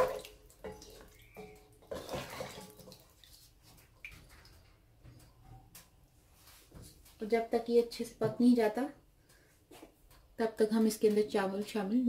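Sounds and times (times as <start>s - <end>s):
spatula knocking and scraping pot: 0.0s - 3.0s
liquid sloshing in a pot: 0.0s - 5.0s.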